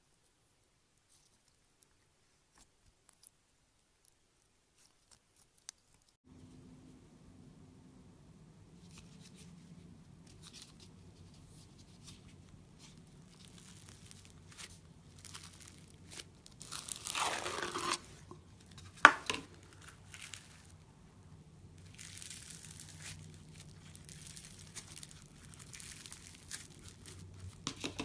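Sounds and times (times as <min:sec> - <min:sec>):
beads crackling and crunching: 0:12.8 - 0:21.0, 0:21.7 - 0:28.0.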